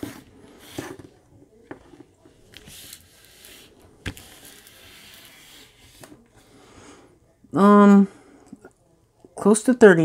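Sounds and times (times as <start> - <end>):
hand rubbing plastic film: 2.4 - 6.2.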